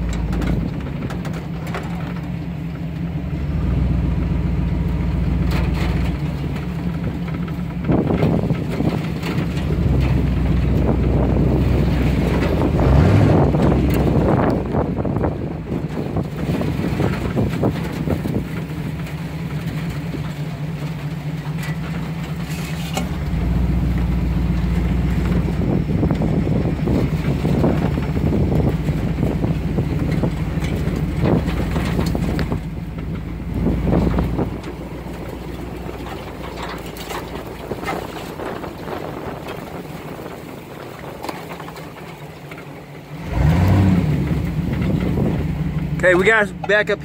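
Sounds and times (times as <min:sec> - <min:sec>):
brush crackling against truck body: 0:00.0 - 0:47.0
truck engine working hard: 0:00.0 - 0:47.0.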